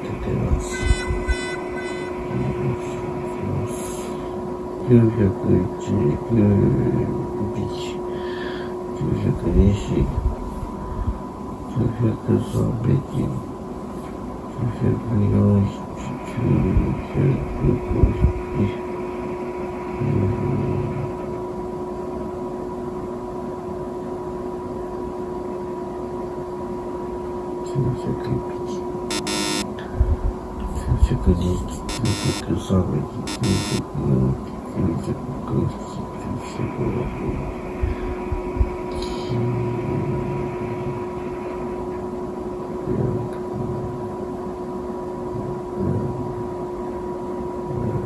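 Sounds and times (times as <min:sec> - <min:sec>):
constant hiss: 0:00.0 - 0:24.7, 0:26.6 - 0:47.0
steady hum: 0:00.0 - 0:48.0
faint high tone: 0:00.6 - 0:03.6.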